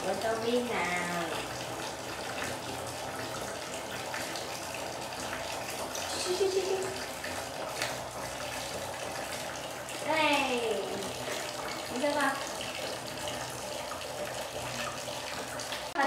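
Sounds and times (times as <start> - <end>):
water running: 0.0 - 16.0.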